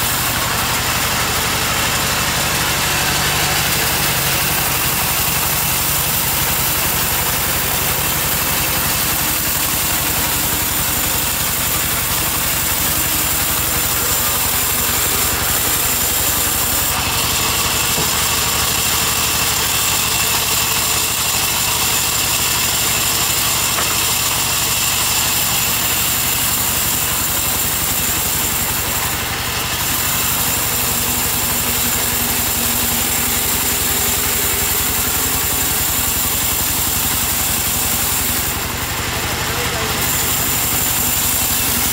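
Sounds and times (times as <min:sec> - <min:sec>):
band saw cutting a log: 0:00.0 - 0:41.9
blade hissing in wood: 0:02.9 - 0:18.4, 0:29.8 - 0:38.6, 0:40.0 - 0:41.9.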